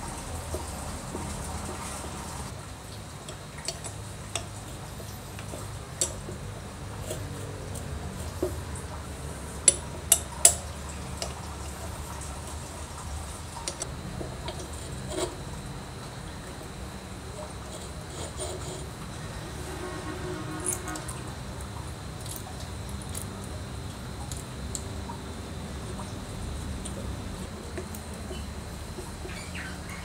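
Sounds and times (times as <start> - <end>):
steady low hum: 0.0 - 30.0
metal parts clicking and tapping: 9.6 - 11.4.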